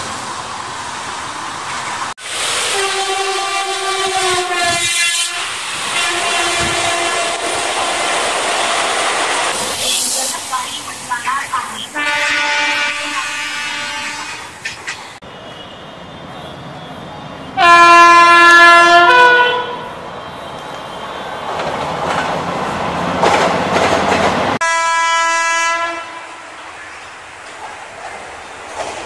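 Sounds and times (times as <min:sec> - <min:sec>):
locomotive horn: 0:02.7 - 0:07.6, 0:11.9 - 0:14.5, 0:17.6 - 0:19.9, 0:24.6 - 0:26.6
two-tone horn blast: 0:02.7 - 0:07.6, 0:11.9 - 0:14.5, 0:17.6 - 0:19.9, 0:24.6 - 0:26.5
train wheels clattering on rails: 0:14.5 - 0:15.2, 0:21.4 - 0:24.6, 0:26.9 - 0:29.0.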